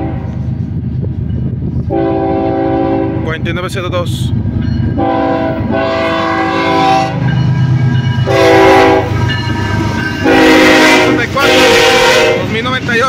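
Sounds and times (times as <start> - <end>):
locomotive horn blasts: 0.0 - 0.5, 1.9 - 3.3, 5.0 - 7.4, 8.2 - 12.6
diesel locomotives rumbling: 0.0 - 13.0.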